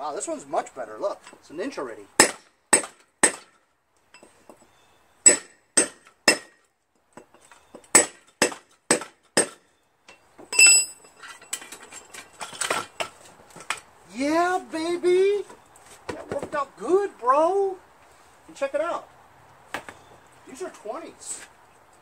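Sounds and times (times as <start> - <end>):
sledgehammer striking chisel: 2.2 - 3.6, 5.2 - 6.6, 7.9 - 9.6
ringing metal clank: 10.1 - 13.0
scraping and rattling: 10.5 - 13.8.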